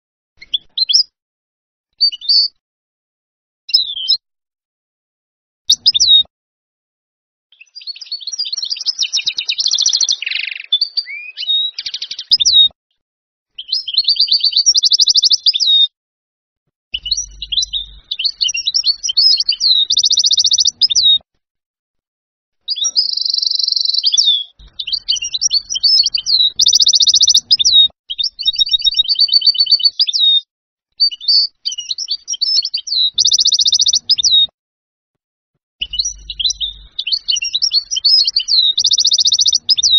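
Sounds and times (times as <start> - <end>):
goldfinch twittering song: 5.7 - 6.3, 7.6 - 12.7, 13.6 - 15.8, 17.0 - 21.2, 22.7 - 30.4, 31.0 - 34.5, 35.8 - 39.9.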